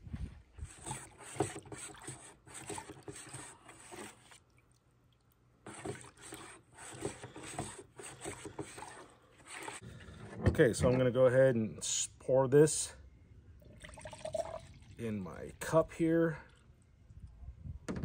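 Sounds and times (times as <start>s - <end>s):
stick stirring liquid in bucket: 0.6s - 10.4s
stick scraping plastic bucket: 0.7s - 4.4s, 5.6s - 11.1s.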